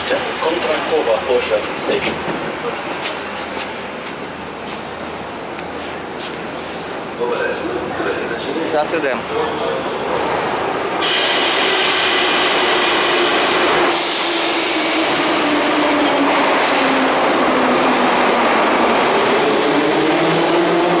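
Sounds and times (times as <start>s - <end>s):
train doors closing: 0.0s - 7.0s, 9.6s - 21.0s
air hiss: 13.9s - 15.3s.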